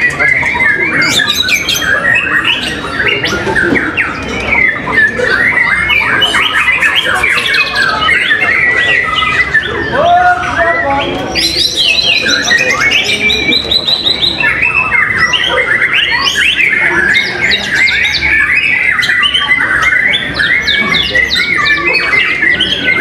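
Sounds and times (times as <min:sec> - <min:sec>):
songbird trills and whistles: 0:00.0 - 0:23.0.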